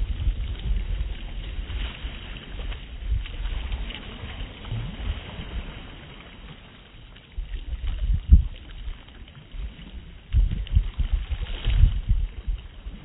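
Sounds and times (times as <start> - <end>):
wind buffeting microphone: 0.0 - 6.1, 7.3 - 13.0
choppy water: 0.0 - 13.0.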